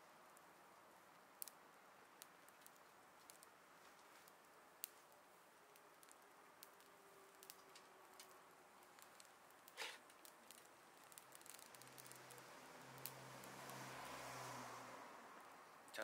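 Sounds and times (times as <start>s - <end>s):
twigs crackling in a stove: 0.0s - 16.0s.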